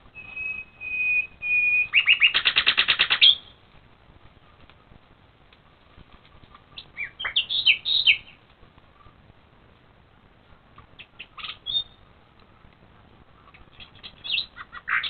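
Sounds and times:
badger cubs squeaking: 0.2s - 3.5s
faint rustling: 3.7s - 7.0s.

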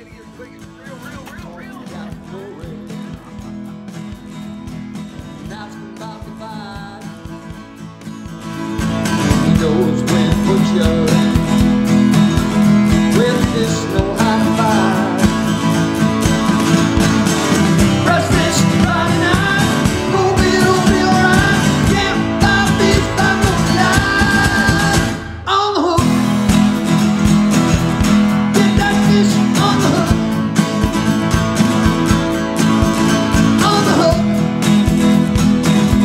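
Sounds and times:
country song with guitar: 0.0s - 36.0s
person singing: 17.9s - 26.2s, 33.5s - 34.4s.

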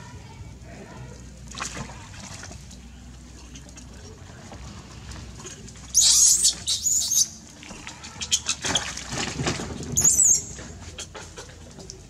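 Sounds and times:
rustling and patter: 1.7s - 12.0s
monkeys squeaking: 5.9s - 7.4s, 10.0s - 10.6s.

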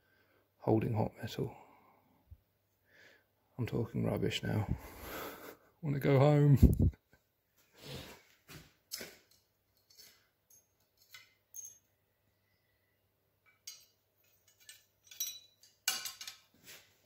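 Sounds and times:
metal tools clinking on anvil: 9.8s - 12.0s, 13.5s - 16.5s.

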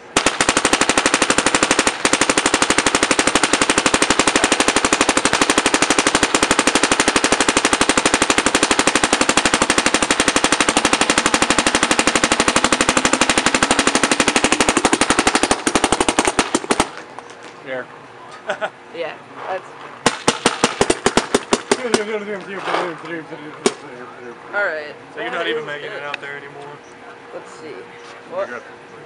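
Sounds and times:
paintball marker firing rapidly: 0.0s - 17.0s, 20.0s - 22.2s.

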